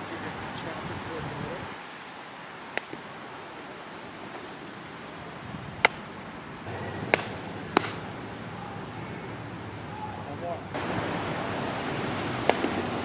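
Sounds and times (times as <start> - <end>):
wind noise: 0.0 - 13.0
bat and glove cracks: 2.7 - 3.1, 5.8 - 6.4, 7.0 - 8.2, 12.4 - 12.9.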